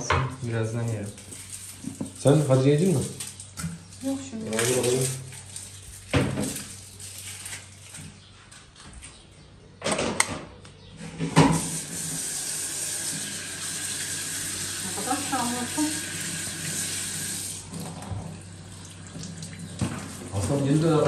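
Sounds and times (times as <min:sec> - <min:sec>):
water running from kitchen tap: 0:04.3 - 0:06.7, 0:11.4 - 0:21.0.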